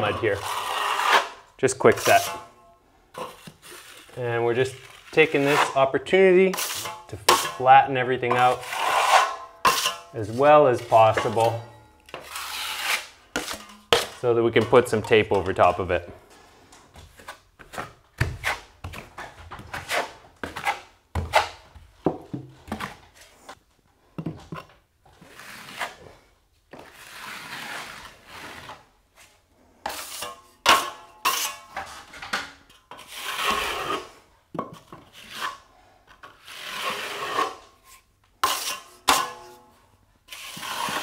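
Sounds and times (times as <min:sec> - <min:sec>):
drywall knife scraping compound: 0:00.0 - 0:23.6, 0:24.2 - 0:41.0.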